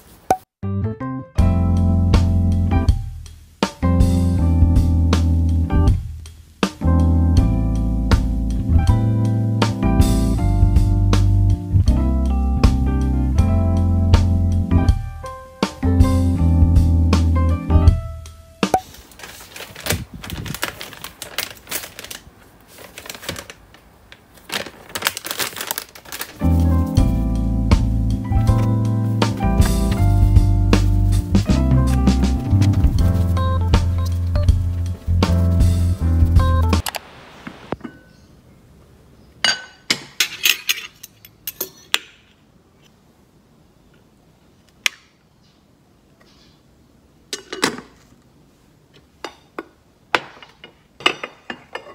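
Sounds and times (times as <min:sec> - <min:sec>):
background music: 0:00.6 - 0:18.8, 0:26.3 - 0:36.8
plastic snack pouch crinkling: 0:18.8 - 0:26.9
metal lid and spoon clinking: 0:39.5 - 0:42.2.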